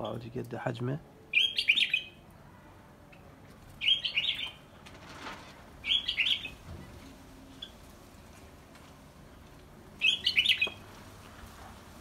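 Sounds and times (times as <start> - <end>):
finches chirping: 1.3 - 2.2, 3.8 - 4.6, 5.8 - 6.6, 10.0 - 10.8.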